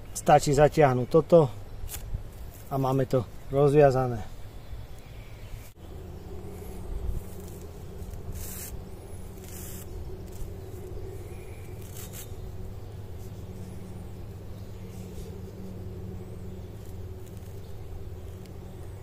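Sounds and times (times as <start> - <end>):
rustling scrapes: 6.5 - 10.9, 11.6 - 12.4.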